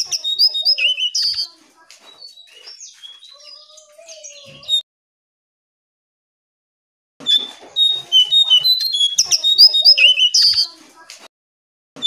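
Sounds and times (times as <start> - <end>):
bird whistle: 0.0 - 4.8, 7.2 - 10.8
songbird chirps and trills: 0.0 - 4.8, 7.2 - 11.1.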